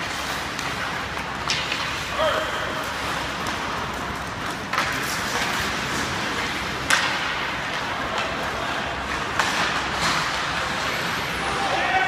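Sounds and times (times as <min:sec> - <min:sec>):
hockey stick and puck cracks: 0:00.0 - 0:10.9.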